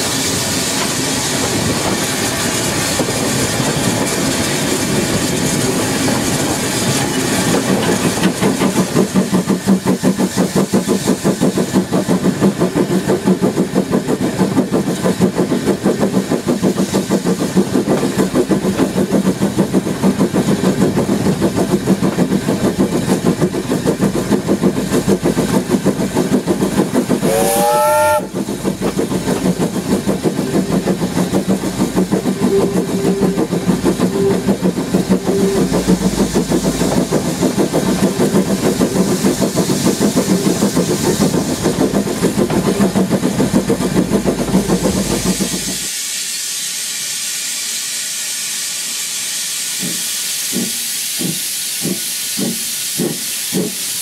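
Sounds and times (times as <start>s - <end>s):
steam locomotive exhaust beating: 0.0s - 54.0s
steam whistle blast: 27.2s - 28.3s.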